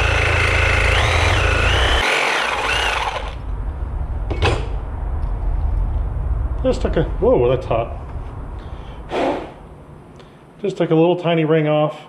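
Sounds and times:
angle grinder cutting steel: 0:00.0 - 0:03.4.

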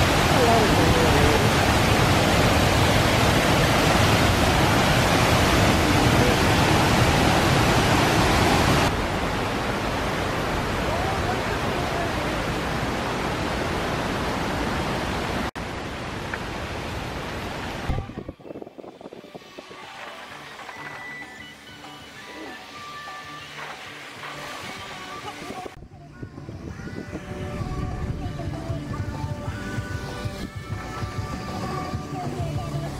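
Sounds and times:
stream rushing over rocks: 0:00.0 - 0:25.8.

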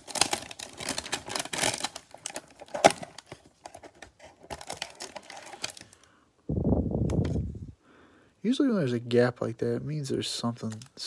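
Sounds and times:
cardboard box tearing: 0:00.0 - 0:05.8
plastic wrap crinkling: 0:00.0 - 0:06.1.

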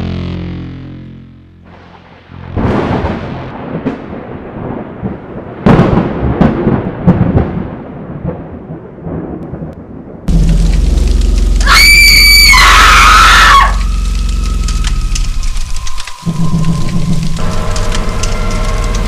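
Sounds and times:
sharp thunder cracks: 0:01.7 - 0:11.2
thunder rumbling: 0:01.7 - 0:19.0.

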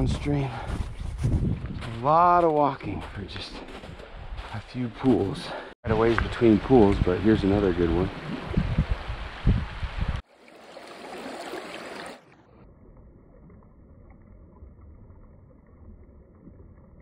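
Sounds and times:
wind rumble on microphone: 0:00.0 - 0:02.0, 0:05.9 - 0:10.2
muffled water sound: 0:05.9 - 0:17.0
stream water running: 0:06.2 - 0:17.0.

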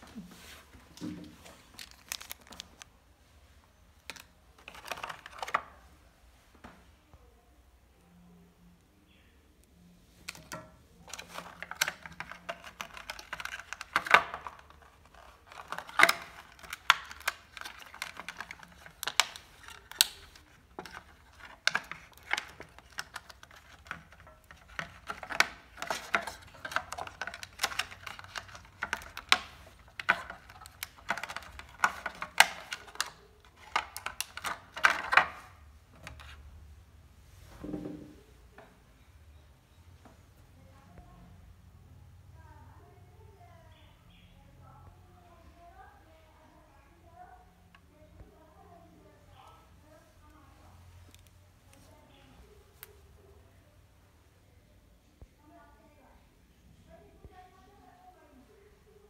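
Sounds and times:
plastic tray crinkling: 0:00.4 - 0:02.9, 0:04.0 - 0:05.8, 0:10.2 - 0:36.4.

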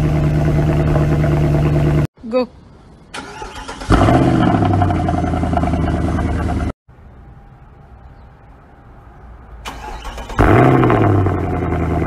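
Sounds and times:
car engine idling: 0:00.0 - 0:02.1.

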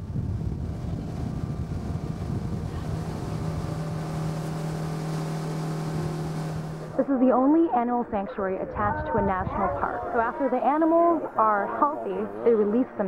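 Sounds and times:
wind buffeting microphone: 0:00.0 - 0:07.0, 0:08.6 - 0:10.2
motorboat engine hum: 0:00.0 - 0:13.0.

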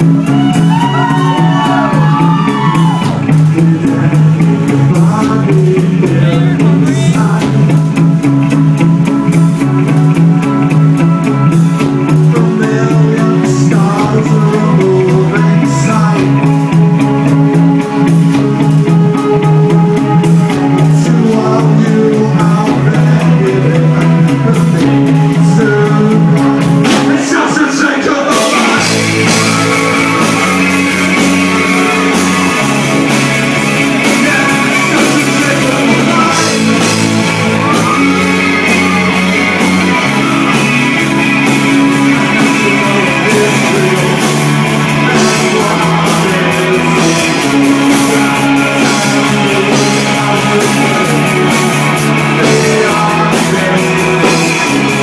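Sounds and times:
lead singer singing: 0:00.0 - 0:08.5, 0:09.5 - 0:55.0
drum kit: 0:00.0 - 0:55.0
electric guitar: 0:00.0 - 0:55.0.

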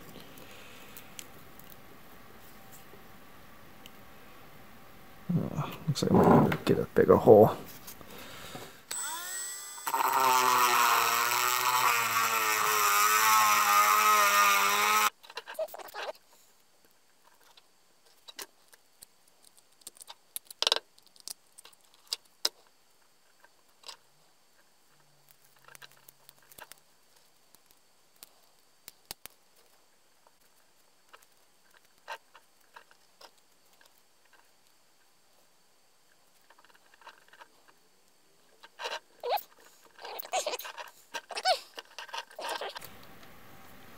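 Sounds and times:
small power drill whirring: 0:08.9 - 0:15.2
clicks and scraping of hand work: 0:24.9 - 0:34.5, 0:38.5 - 0:42.9.

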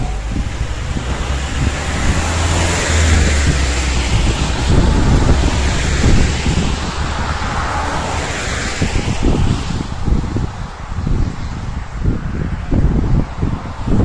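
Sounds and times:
tyres hissing on wet road: 0:00.0 - 0:12.6
truck engine hum: 0:00.0 - 0:14.0
wind buffeting microphone: 0:00.0 - 0:14.0.

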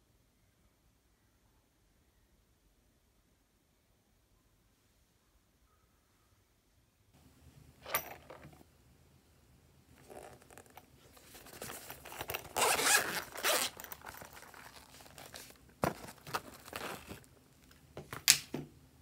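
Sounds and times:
zipper being pulled open: 0:10.0 - 0:15.6.

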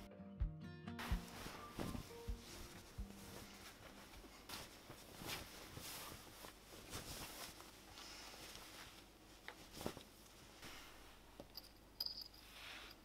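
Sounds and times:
bedding rustling: 0:01.0 - 0:11.4.

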